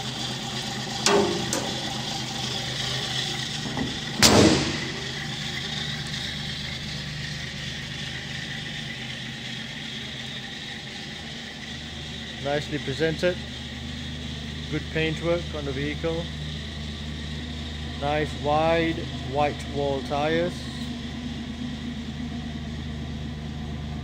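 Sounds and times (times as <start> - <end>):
car engine idling: 0.0 - 24.0
loud thump: 1.1 - 1.9, 3.6 - 5.2.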